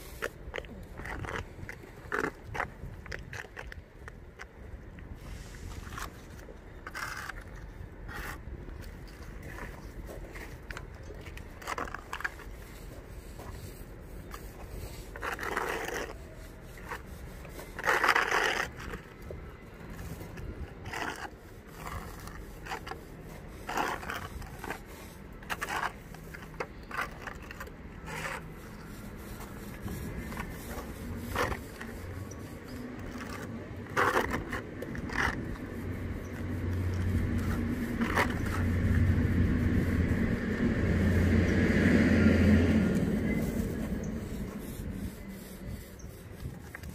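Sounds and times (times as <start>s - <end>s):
spatula scraping filler paste: 0.0s - 4.6s, 5.2s - 46.9s
vehicle engine hum: 4.4s - 46.9s.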